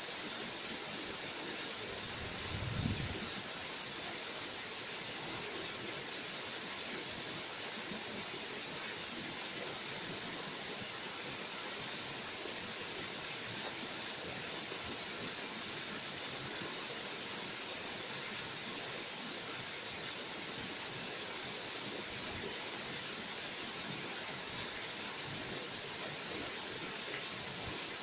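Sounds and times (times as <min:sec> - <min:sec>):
small waterfall rushing: 0:00.0 - 0:28.0.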